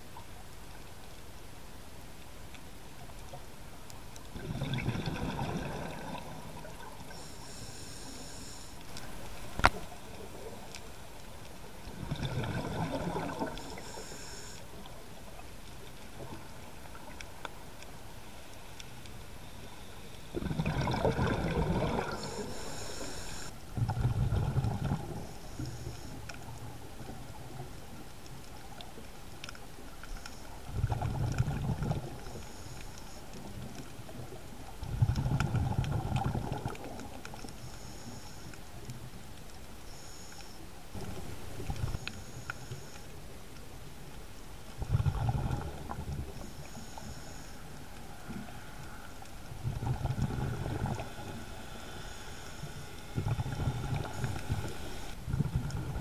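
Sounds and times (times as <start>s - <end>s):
exhaled bubbles gurgling underwater: 4.3s - 8.3s, 8.9s - 15.5s, 20.2s - 28.0s, 30.6s - 32.5s, 33.3s - 37.6s, 44.6s - 51.9s, 52.6s - 56.0s
regulator hissing: 22.2s - 23.5s.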